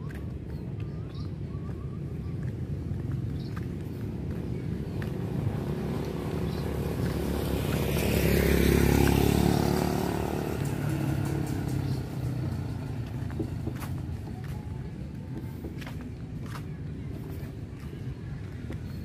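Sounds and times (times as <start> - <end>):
street traffic: 0.0 - 19.0
vehicle passing close by: 4.7 - 14.4.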